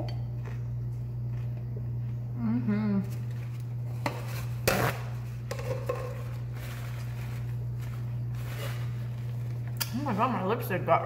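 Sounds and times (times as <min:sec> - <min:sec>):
steady low hum: 0:00.0 - 0:11.0
paper napkin rustling: 0:06.1 - 0:09.8
paper crinkle: 0:06.2 - 0:09.8.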